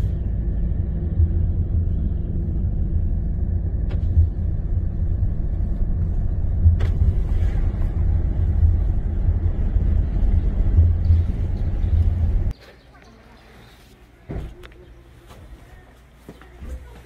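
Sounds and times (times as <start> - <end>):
car engine and tyre rumble: 0.0 - 12.5.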